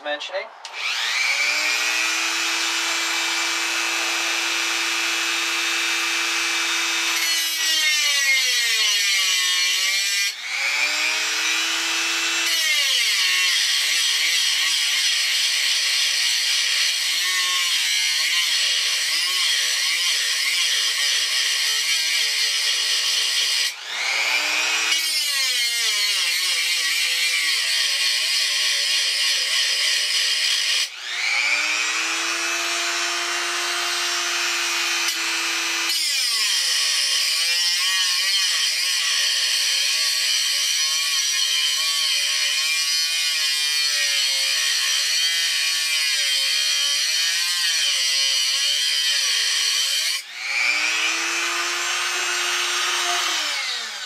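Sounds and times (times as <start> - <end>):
rotary tool cutting metal: 0.6 - 54.0.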